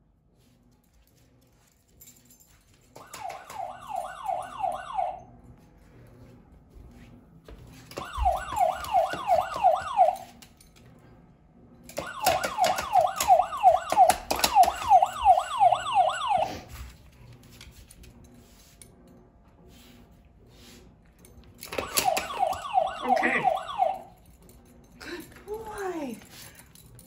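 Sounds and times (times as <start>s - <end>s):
siren alarm wailing: 3.0s - 5.4s, 7.9s - 10.4s, 11.9s - 16.8s, 21.7s - 24.3s.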